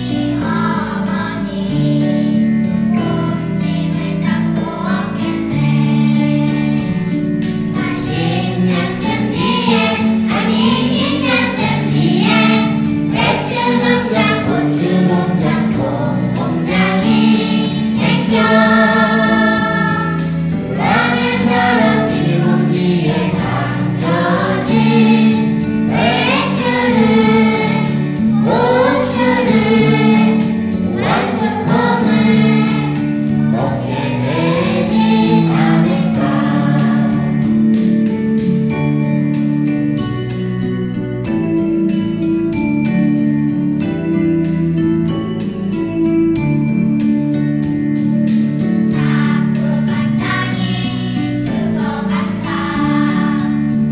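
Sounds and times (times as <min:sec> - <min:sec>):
children's choir singing: 0:00.0 - 0:37.6, 0:48.9 - 0:53.9
instrumental accompaniment: 0:00.0 - 0:53.9.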